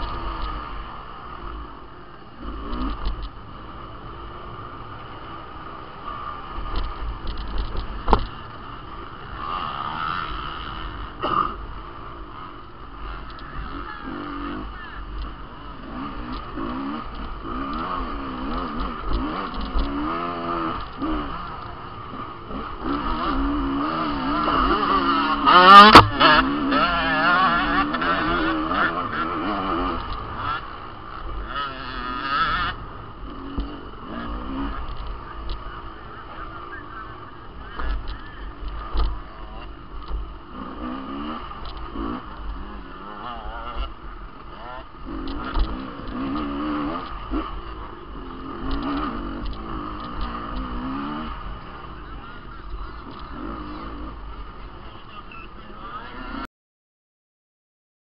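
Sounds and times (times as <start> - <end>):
dirt bike engine revving: 0.0 - 56.5
knocks from bike and stones: 6.7 - 8.4.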